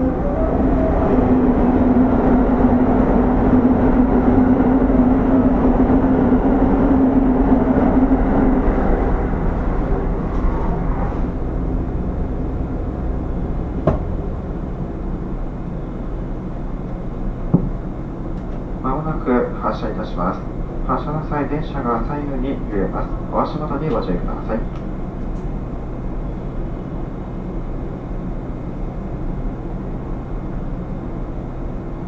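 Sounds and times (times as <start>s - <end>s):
train wheels on rail: 0.0s - 18.8s.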